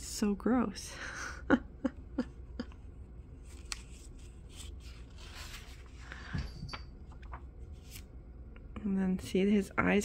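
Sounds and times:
paper pages rustling: 3.4 - 6.1, 7.1 - 8.1.

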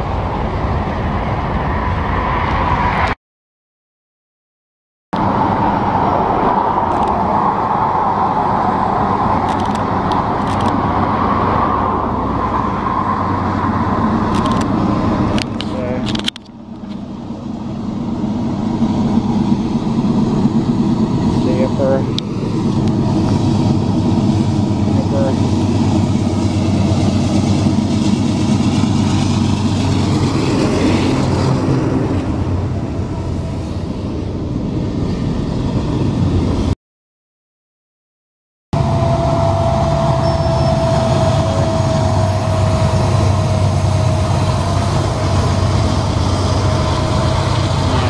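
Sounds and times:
train rumbling past: 0.0 - 3.2, 5.2 - 36.8, 38.8 - 48.0
car interior road noise: 5.2 - 34.4.

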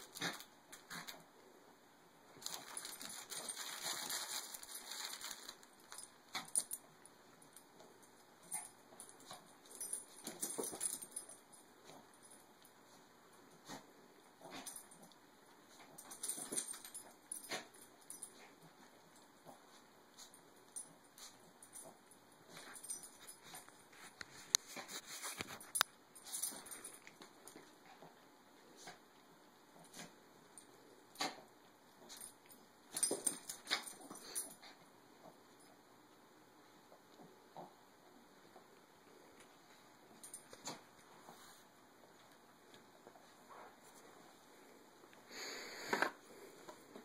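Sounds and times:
clicks and scuffles: 23.5 - 25.9.

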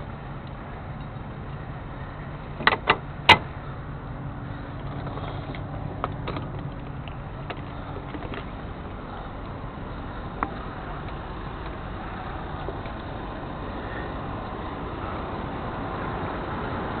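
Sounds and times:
tow truck engine humming: 0.0 - 17.0.

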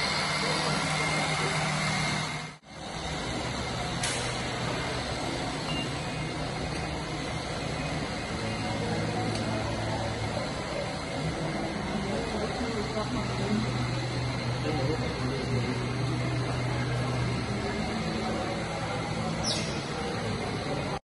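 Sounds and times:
indoor hum and noise: 0.0 - 21.0
faint voices: 3.2 - 21.0.

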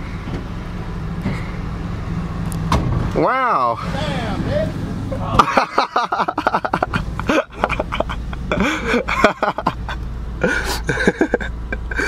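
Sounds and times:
car engine idling: 0.0 - 12.0
men exclaiming: 3.3 - 12.0.

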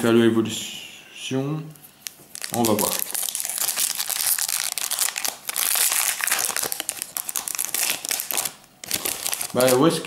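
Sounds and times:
foil wrapper crinkling and tearing: 2.3 - 9.9.

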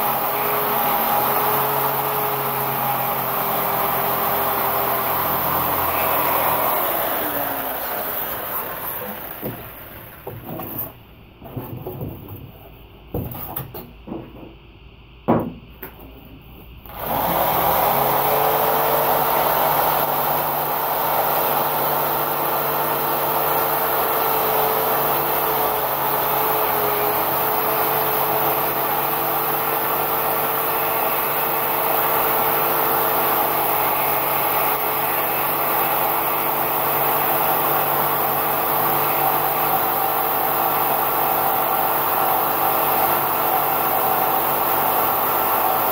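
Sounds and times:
electric jigsaw cutting foam: 0.0 - 10.9, 16.9 - 45.9
foam block handling knocks: 15.3 - 16.0.

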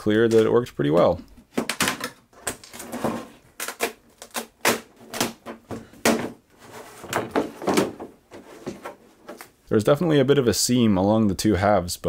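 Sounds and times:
plastic mold cracking and clacking: 0.2 - 6.4.

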